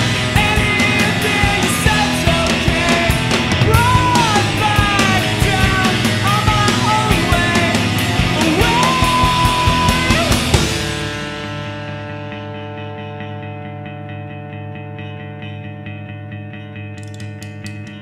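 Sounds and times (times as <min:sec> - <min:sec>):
person singing: 0:00.0 - 0:10.6
drums: 0:00.0 - 0:18.0
guitars: 0:00.0 - 0:18.0.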